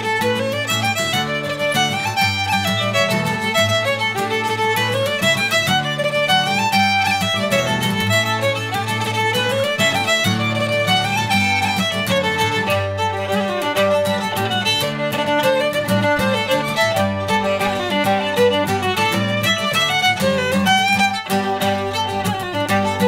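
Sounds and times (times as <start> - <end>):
fiddle tune: 0.0 - 23.0
guitar strummed chords: 0.0 - 23.0.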